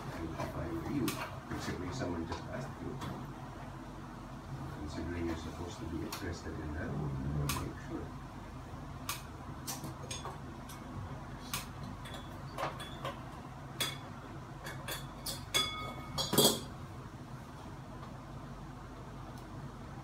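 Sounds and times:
ceiling fan hardware clinking: 9.2s - 16.8s.

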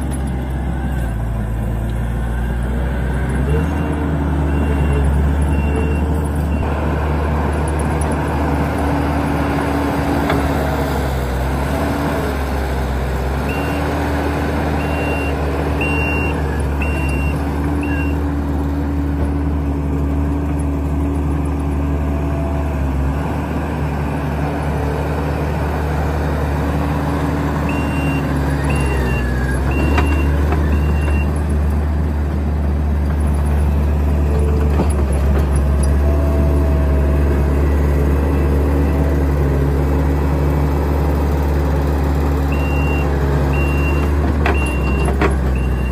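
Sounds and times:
diesel engine running: 0.0s - 45.9s
digging and pushing dirt: 0.0s - 45.9s
reversing alarm beeps: 14.8s - 18.2s, 42.5s - 45.9s.

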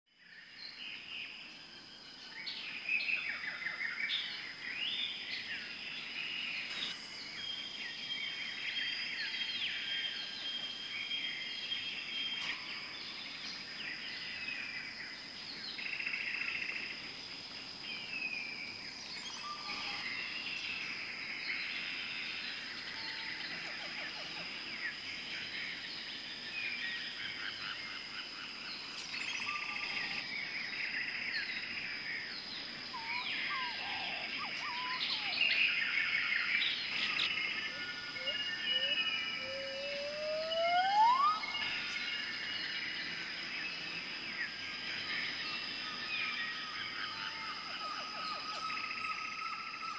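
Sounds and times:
birds chirping and calling: 28.8s - 43.2s.

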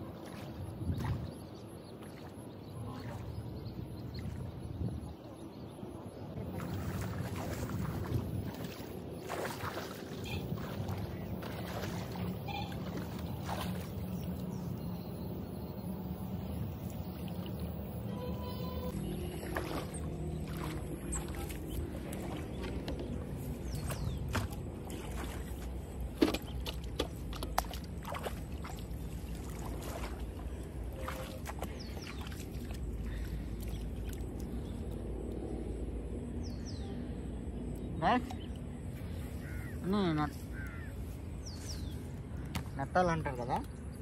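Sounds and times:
water splashing as people wade: 0.0s - 4.9s, 6.3s - 14.9s, 18.9s - 35.0s.

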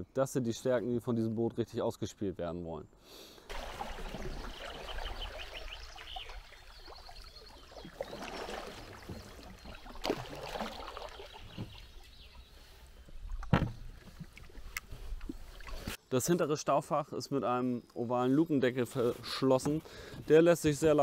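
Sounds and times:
paddle splashing water: 3.5s - 16.0s.

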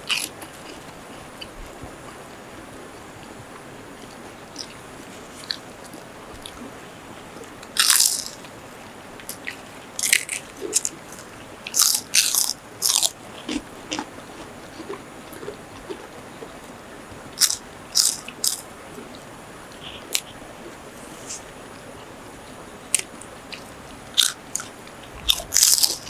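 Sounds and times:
crunching fried food: 0.0s - 1.6s, 7.6s - 8.5s, 9.2s - 16.6s, 17.4s - 18.7s, 23.0s - 26.0s.

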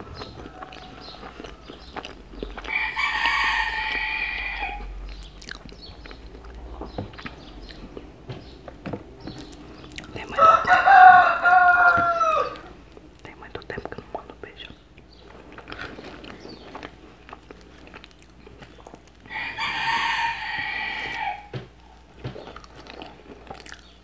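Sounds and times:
rooster crowing: 0.0s - 1.9s, 2.5s - 5.0s, 10.3s - 12.8s, 19.2s - 21.7s.

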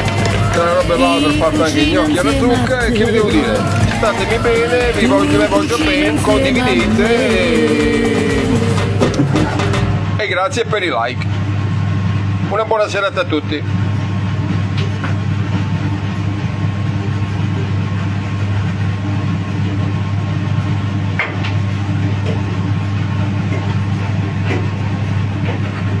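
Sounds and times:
machine humming: 0.0s - 12.6s.

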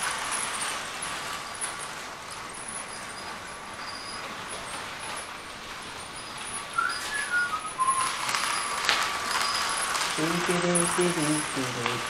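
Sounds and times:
faint steady hiss: 0.0s - 12.0s
short falling whistle: 6.8s - 9.8s.

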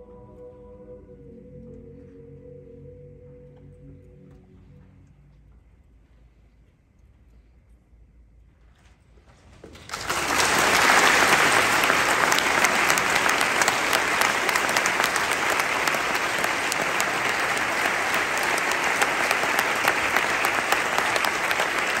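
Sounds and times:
audience clapping: 9.8s - 22.0s.

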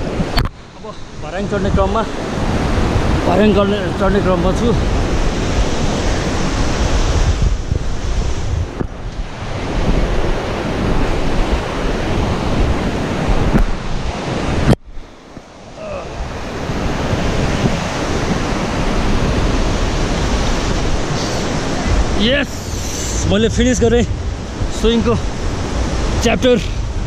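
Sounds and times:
wind buffeting microphone: 0.0s - 27.0s
whitewater river rushing: 9.3s - 26.8s.

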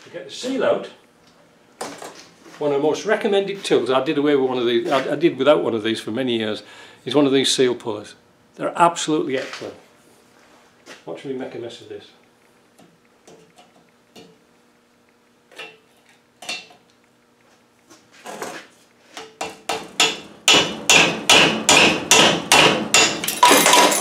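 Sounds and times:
hammer striking metal: 19.4s - 24.0s.

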